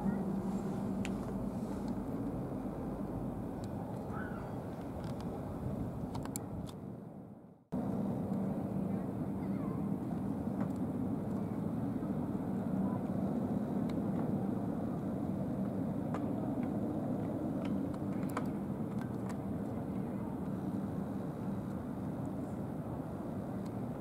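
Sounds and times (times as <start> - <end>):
helicopter turbine engines idling: 0.0 - 6.1, 7.8 - 24.0.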